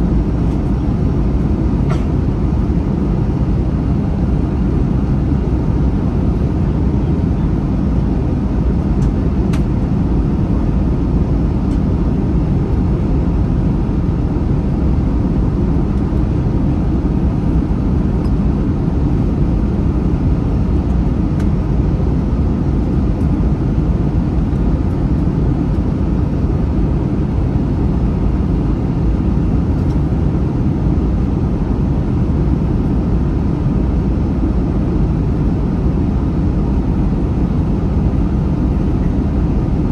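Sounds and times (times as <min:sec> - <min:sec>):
jet engine cabin rumble: 0:00.0 - 0:39.9.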